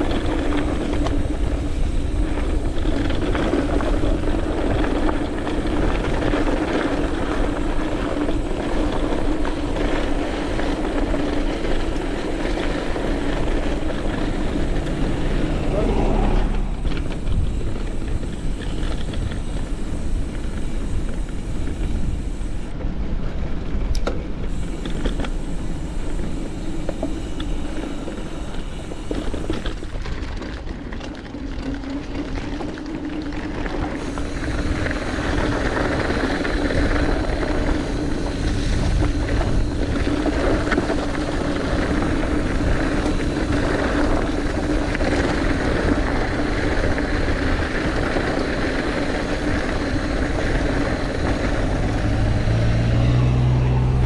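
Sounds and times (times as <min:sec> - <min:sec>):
steady hum: 0:00.0 - 0:22.8, 0:24.5 - 0:30.0
tyres rolling on dirt trail: 0:00.0 - 0:54.0
wind rumbling on microphone: 0:00.0 - 0:54.0.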